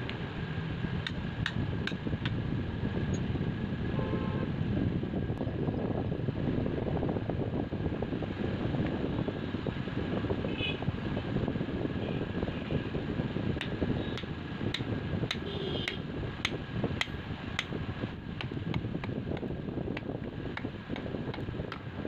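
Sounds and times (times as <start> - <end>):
low mechanical rumble: 0.0 - 22.0.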